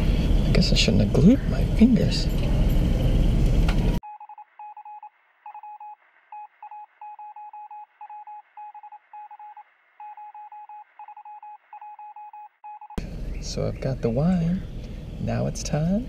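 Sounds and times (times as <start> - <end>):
morse code beeps: 4.0 - 13.0.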